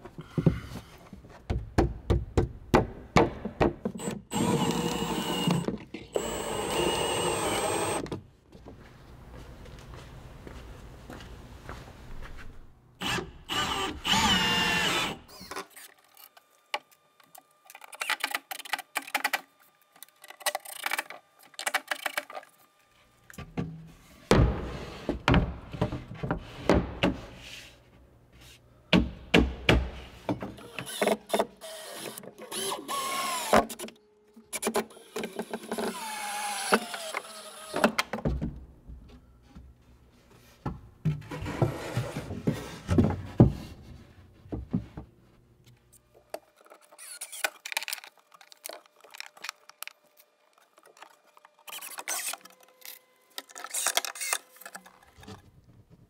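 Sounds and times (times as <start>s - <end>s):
cordless drill driving screws: 4.0s - 8.0s, 13.0s - 15.5s, 30.6s - 33.5s, 34.9s - 37.8s.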